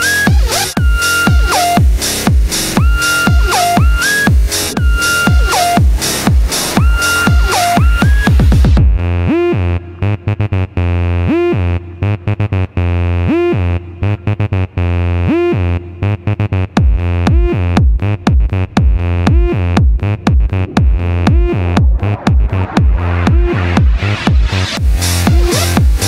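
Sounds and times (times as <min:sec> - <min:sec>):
sliding synthesizer note: 0:00.0 - 0:09.6
deep bass: 0:00.0 - 0:26.0.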